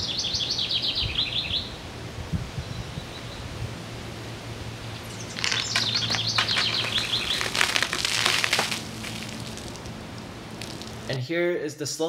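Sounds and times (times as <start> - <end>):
liquid spattering onto table: 5.4 - 11.1.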